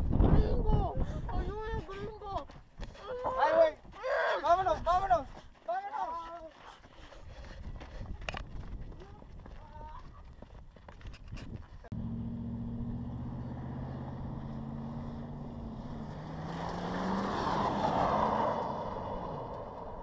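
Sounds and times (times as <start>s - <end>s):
vehicle engine running: 11.9s - 17.3s
vehicle passing rush: 11.9s - 20.0s.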